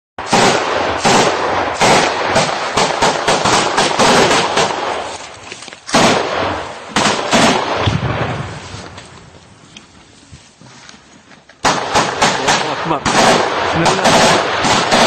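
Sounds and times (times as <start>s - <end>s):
gunshots: 0.2s - 5.1s, 5.9s - 8.6s, 11.6s - 15.0s.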